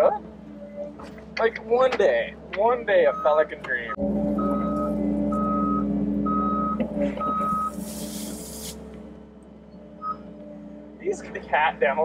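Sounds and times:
engine running: 0.0 - 12.0
backup alarm beeping: 3.0 - 7.8
burst of hiss: 7.7 - 8.8.

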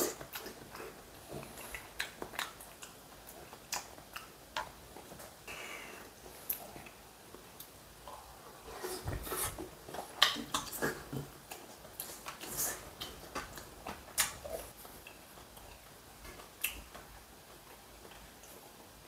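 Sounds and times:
man chewing wetly: 0.0 - 5.4, 6.0 - 18.9.

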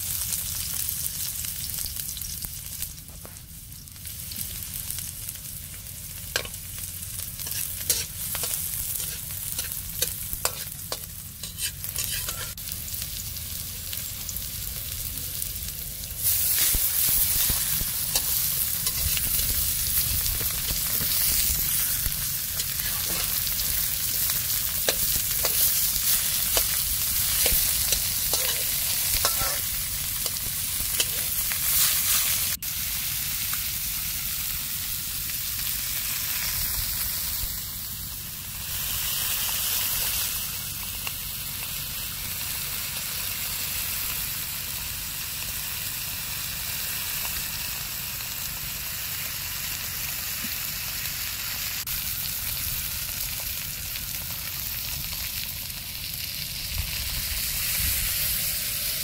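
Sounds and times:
fish sizzling in hot oil: 0.0 - 59.0
metal tongs scraping pan: 7.4 - 12.6, 16.5 - 32.4.

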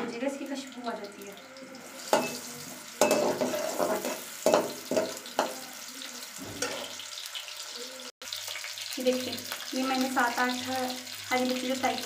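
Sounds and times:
onions sizzling in hot oil: 0.0 - 12.0
metal spoon clacking on wok: 3.0 - 5.6.

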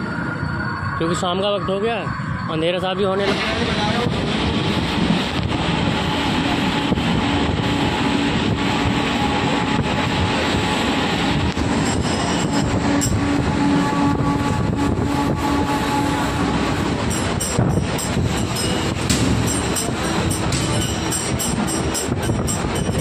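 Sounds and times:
train wheels rumbling on track: 0.0 - 23.0
scattered clacks: 17.0 - 23.0.

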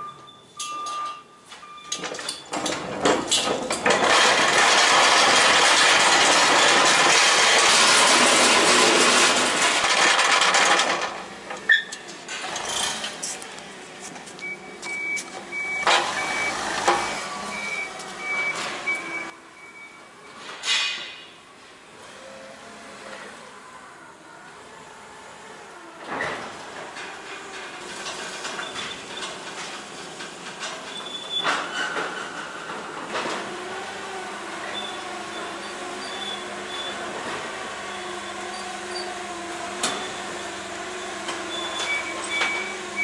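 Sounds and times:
forklift backup alarm beeping: 0.0 - 2.5, 14.4 - 20.4, 39.8 - 43.0
pallet jack rattling on wooden floor: 2.1 - 11.3.

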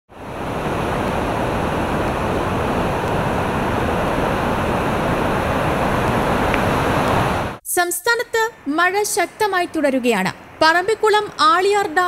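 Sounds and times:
river water roaring: 0.1 - 7.6.

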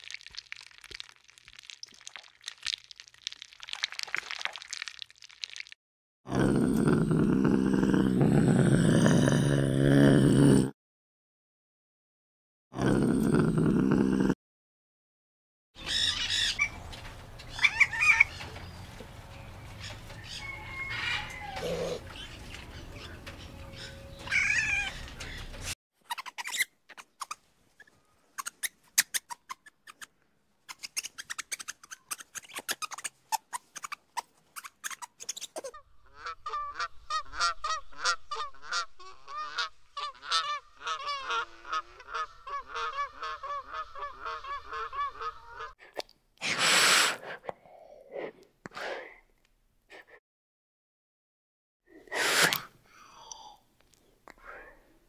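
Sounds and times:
swans honking: 35.8 - 45.8.

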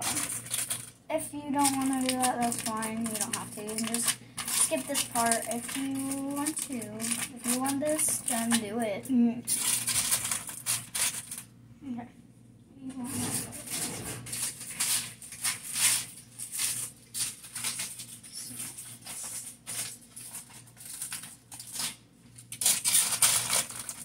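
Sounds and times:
aluminium foil crinkling: 0.0 - 11.5, 13.1 - 24.0.

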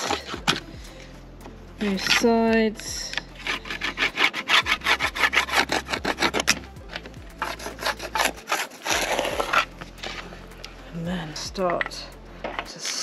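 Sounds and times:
plastic scraper rubbing ski edge: 0.0 - 0.6, 3.4 - 10.3.

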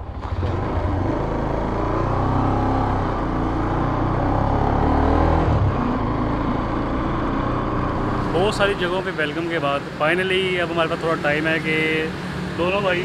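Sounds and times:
motorcycle engine accelerating: 0.0 - 9.3.

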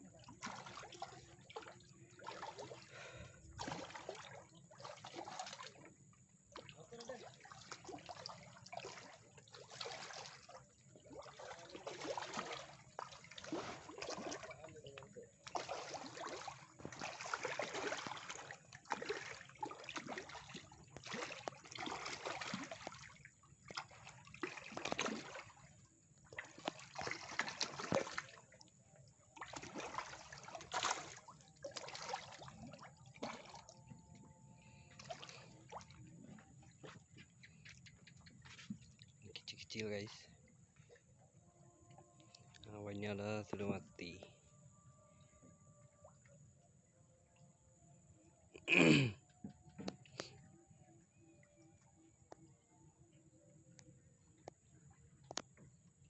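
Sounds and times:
fish splashing at water surface: 0.2 - 5.9, 6.5 - 28.6, 29.4 - 33.9, 34.6 - 36.1.

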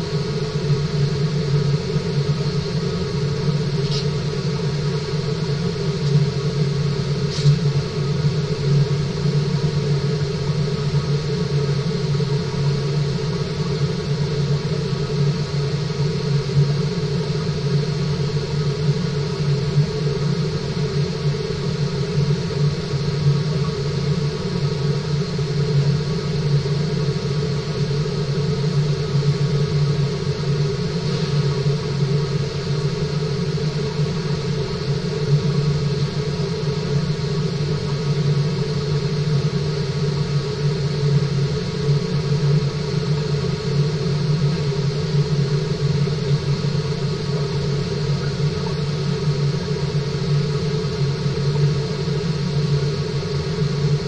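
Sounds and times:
low hum with water rushing: 0.0 - 54.0.

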